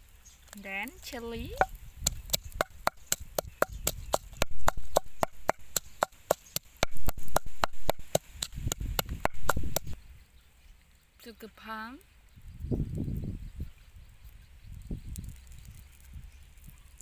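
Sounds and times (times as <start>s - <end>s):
pestle pounding in mortar: 1.6s - 10.0s.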